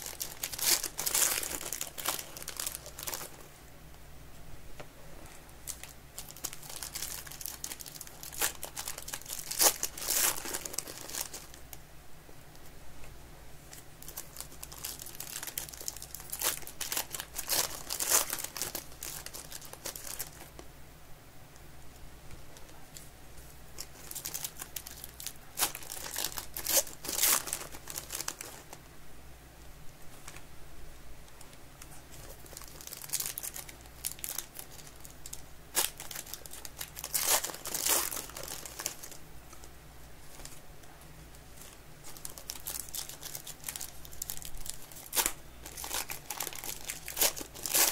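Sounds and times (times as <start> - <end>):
foil wrappers crinkling and tearing: 0.0 - 3.4, 5.6 - 11.7, 13.7 - 20.6, 23.8 - 28.8, 32.0 - 39.2, 41.6 - 47.9.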